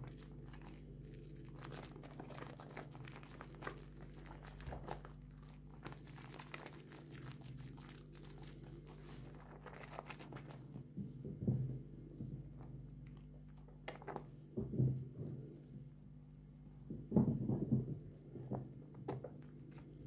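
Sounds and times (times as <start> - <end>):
soap lather crackling and squishing: 0.0 - 11.0
soft squelch: 0.0 - 13.3.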